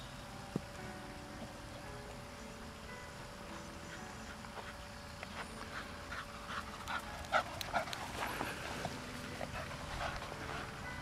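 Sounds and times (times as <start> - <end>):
dog panting hard: 5.7 - 8.8, 9.4 - 10.8.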